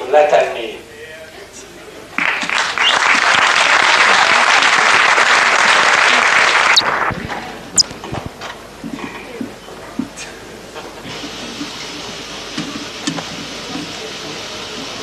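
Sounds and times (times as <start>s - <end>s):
audience applauding: 2.2s - 7.8s.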